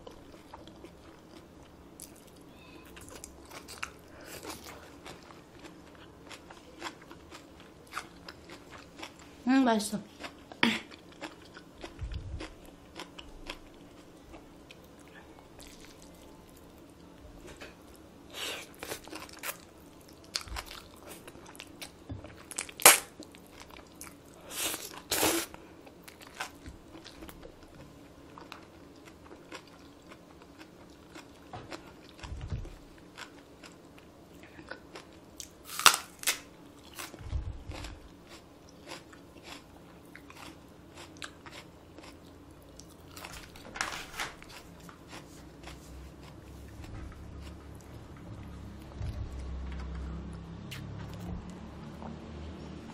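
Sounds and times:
chewing: 0.0 - 9.3, 36.8 - 43.6, 44.4 - 51.2.

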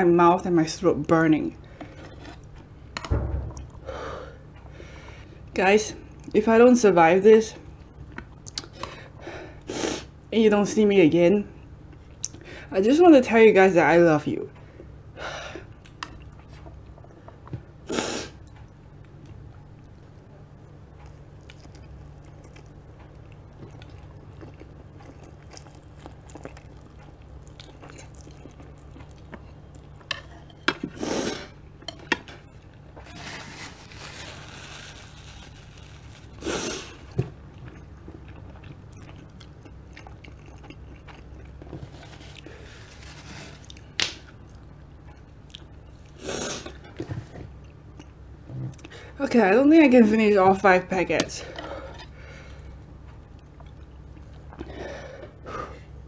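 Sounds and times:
steady low hum: 0.0 - 56.0
person chewing noodles: 21.0 - 33.0, 34.5 - 46.8, 51.6 - 55.7.

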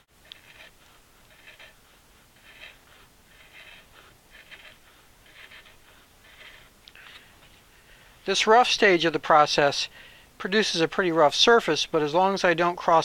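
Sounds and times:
chisel scraping wood: 0.0 - 7.4.

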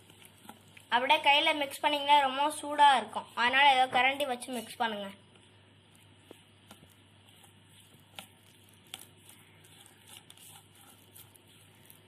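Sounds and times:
low steady hum: 0.0 - 12.0
spoon scraping metal bowl: 6.7 - 12.0.

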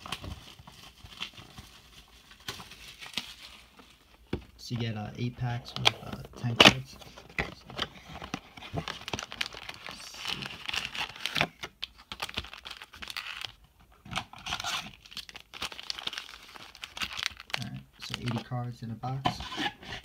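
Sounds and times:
plastic shrink-wrap tearing and crinkling: 0.0 - 3.9, 8.1 - 18.7
foil card packs handled: 0.0 - 20.0.

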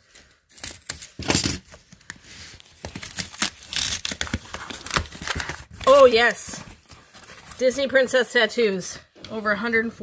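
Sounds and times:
packaging rustling and tearing: 0.0 - 7.7.

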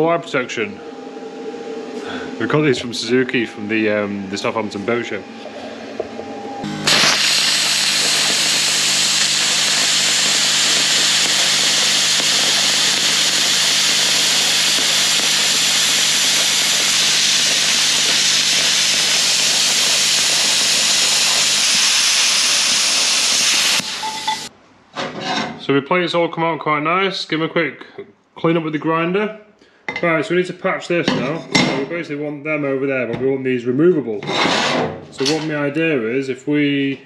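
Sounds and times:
plasma cutter hissing: 6.6 - 24.5.

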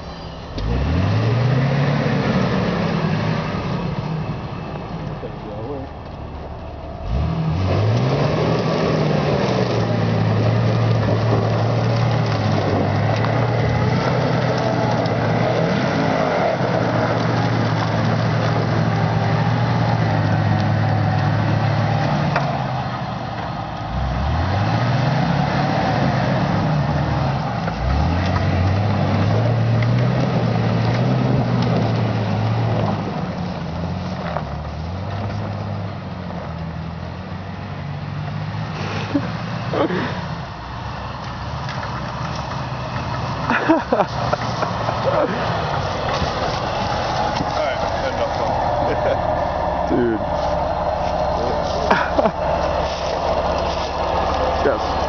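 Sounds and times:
engine revving hard: 0.6 - 4.1, 7.0 - 22.8, 23.9 - 33.3, 43.2 - 55.0.

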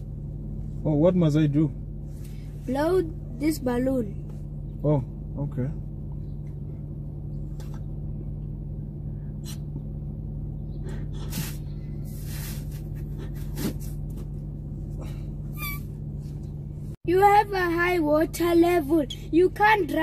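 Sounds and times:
steady low hum: 0.0 - 20.0
man blowing into balloon: 11.1 - 13.9.

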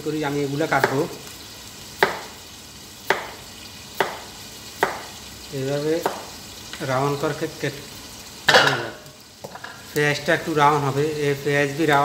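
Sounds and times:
chicken sizzling in a pan: 0.0 - 12.0.

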